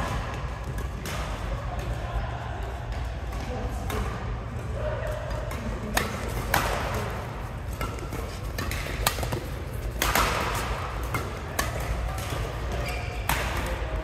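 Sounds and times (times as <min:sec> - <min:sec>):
rackets smacking shuttlecock: 0:00.0 - 0:02.0, 0:05.1 - 0:14.0
shoes squeaking on court floor: 0:12.1 - 0:13.6.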